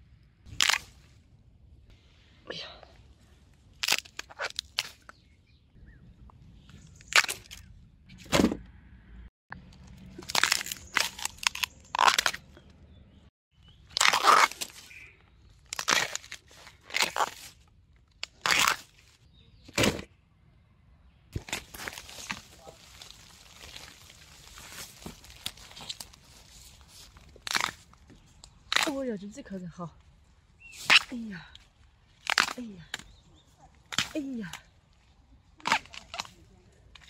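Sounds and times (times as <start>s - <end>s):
bamboo shoots snapping: 0.5s - 1.1s, 3.7s - 5.2s, 7.0s - 7.7s, 9.6s - 12.8s, 13.9s - 19.1s, 21.4s - 29.1s, 30.7s - 33.2s, 33.8s - 34.7s, 35.6s - 37.0s.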